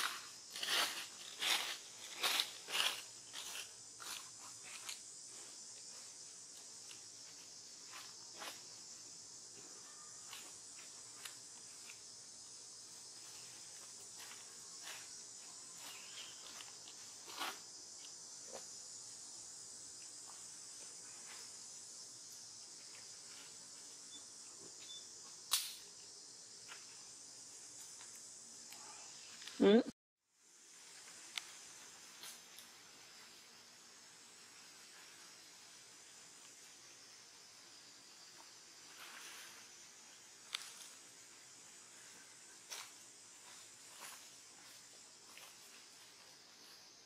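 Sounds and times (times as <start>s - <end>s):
insect chorus drone: 0.0s - 47.0s
sharp click: 25.5s - 25.8s.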